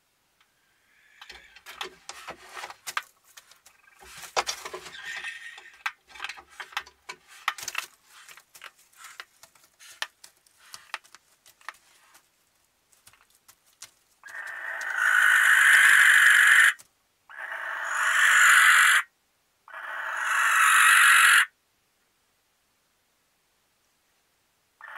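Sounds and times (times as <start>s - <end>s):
talons scratching on wood: 1.2s - 12.3s.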